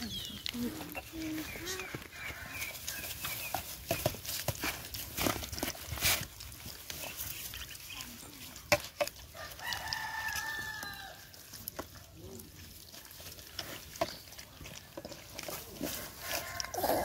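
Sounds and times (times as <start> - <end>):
puppies eating from plastic bowl: 0.0 - 17.0
rooster crowing: 9.3 - 11.2, 16.2 - 17.0.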